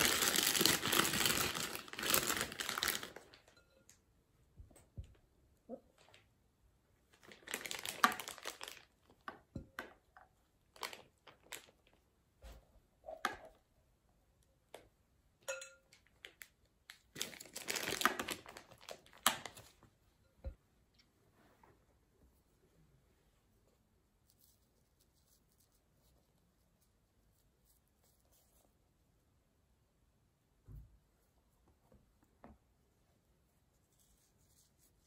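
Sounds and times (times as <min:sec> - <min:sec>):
plastic piping bag crinkling: 0:00.0 - 0:03.5, 0:07.1 - 0:12.0, 0:16.0 - 0:19.9.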